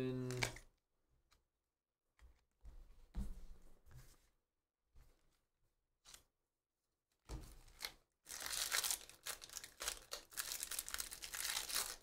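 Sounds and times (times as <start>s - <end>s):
foil wrapper tearing and crinkling: 7.8s - 12.0s.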